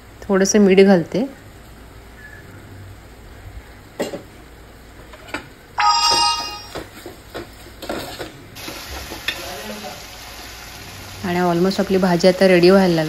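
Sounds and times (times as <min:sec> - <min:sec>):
bright ringing tone: 0:05.8 - 0:06.9.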